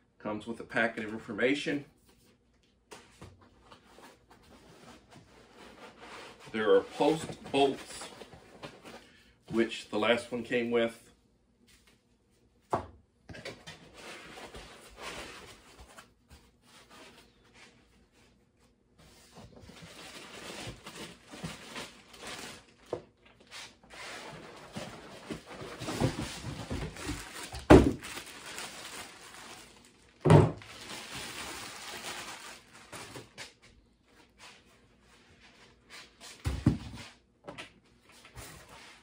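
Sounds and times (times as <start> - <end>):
plastic bag crinkling: 19.8 - 22.9, 26.9 - 33.4.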